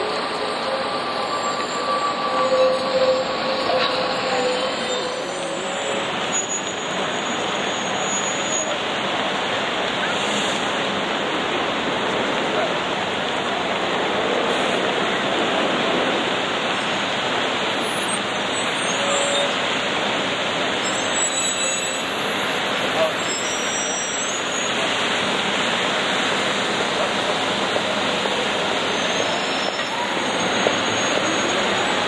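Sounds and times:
crowd chatter: 0:00.0 - 0:16.5
traffic: 0:00.0 - 0:32.0.

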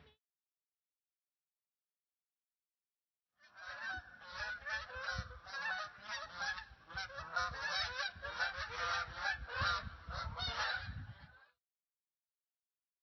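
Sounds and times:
geese honking: 0:03.4 - 0:11.6.

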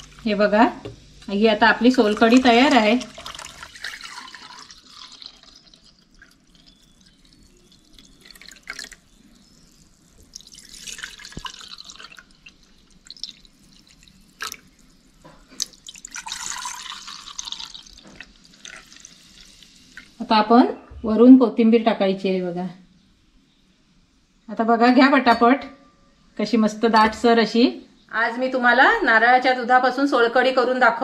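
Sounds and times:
liquid splashing into a tumbler: 0:02.0 - 0:06.8, 0:10.4 - 0:12.3, 0:13.0 - 0:14.7.

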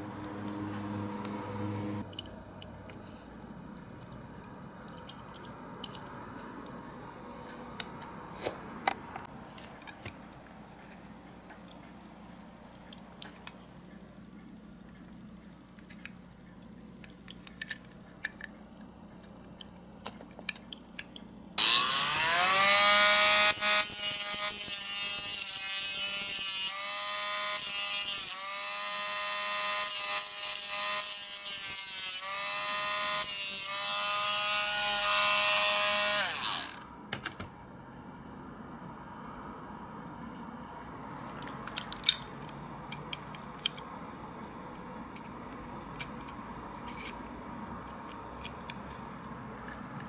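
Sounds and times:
clicks of small parts handled: 0:02.1 - 0:06.8, 0:15.8 - 0:21.3, 0:41.2 - 0:50.0
rotary tool cutting disc whining: 0:21.6 - 0:36.9.

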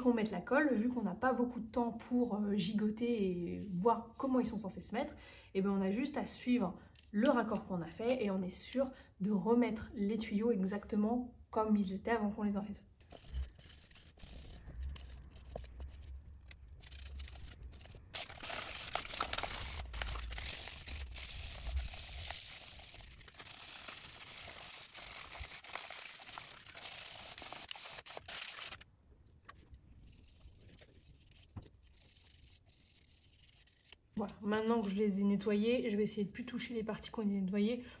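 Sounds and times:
cloth scrubbing plastic: 0:13.0 - 0:28.8.

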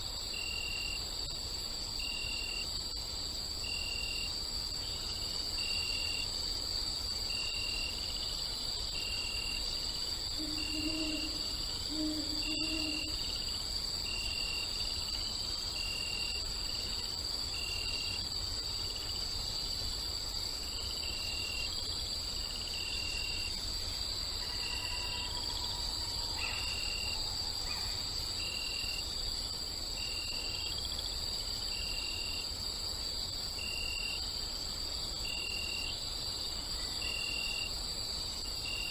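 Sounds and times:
crickets chirping: 0:00.0 - 0:38.9
owl hooting: 0:10.4 - 0:13.2.

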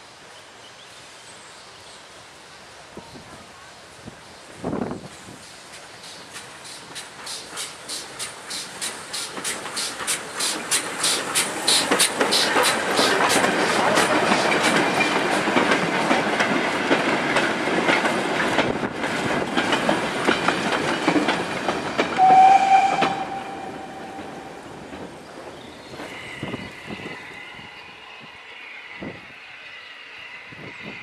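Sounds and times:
steam locomotive exhaust beats: 0:05.0 - 0:25.3
steam whistle: 0:22.2 - 0:24.6.

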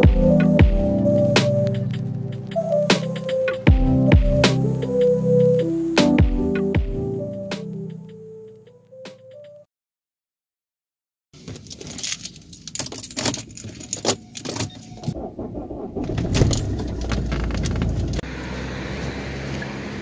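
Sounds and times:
keys jangling: 0:11.7 - 0:14.8
outdoor street noise: 0:13.2 - 0:20.0
clicks and rattles: 0:16.1 - 0:18.2.

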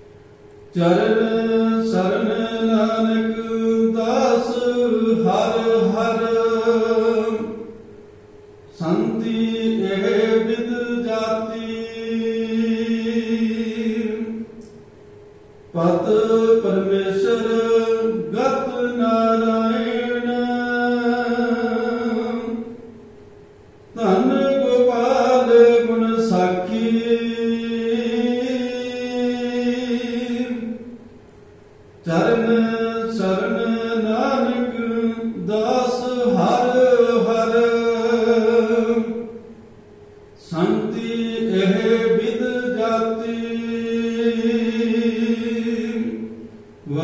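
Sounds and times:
person chanting: 0:08.8 - 0:14.5, 0:24.0 - 0:30.8, 0:32.1 - 0:39.3, 0:40.4 - 0:47.0.

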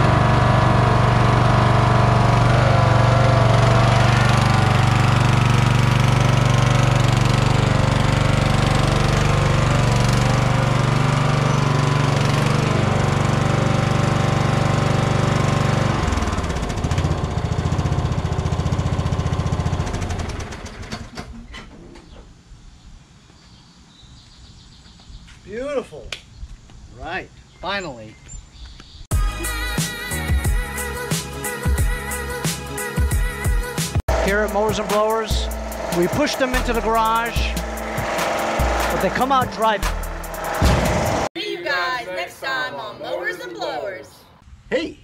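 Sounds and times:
lawn tractor engine running: 0:00.0 - 0:21.1, 0:34.1 - 0:41.3.

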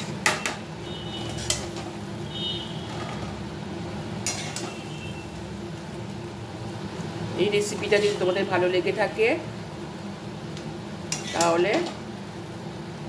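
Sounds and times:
metal spatula scraping wok: 0:00.0 - 0:03.4, 0:04.2 - 0:05.4, 0:07.6 - 0:08.6, 0:11.1 - 0:12.0.

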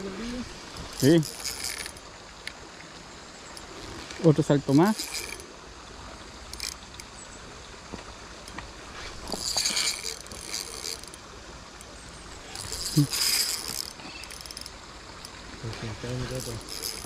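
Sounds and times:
fishing reel drag buzzing: 0:00.6 - 0:02.6, 0:03.4 - 0:05.6, 0:06.4 - 0:07.2, 0:08.9 - 0:15.4, 0:16.0 - 0:17.0.

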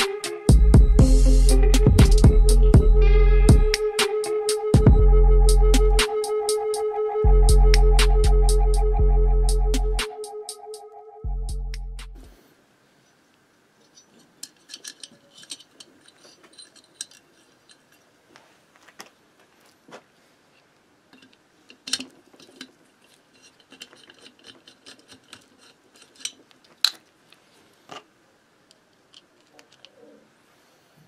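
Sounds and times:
metal nuts and tool clinking: 0:13.8 - 0:18.2, 0:21.1 - 0:27.1.

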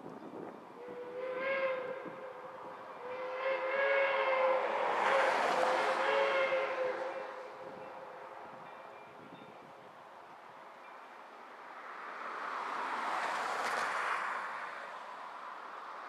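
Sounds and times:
steam locomotive chime whistle: 0:00.8 - 0:09.7.

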